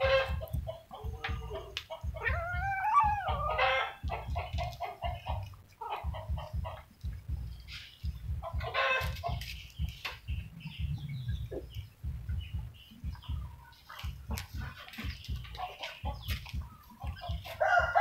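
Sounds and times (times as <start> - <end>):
chickens clucking: 0.0 - 18.0
low rumbling and thumping: 0.0 - 18.0.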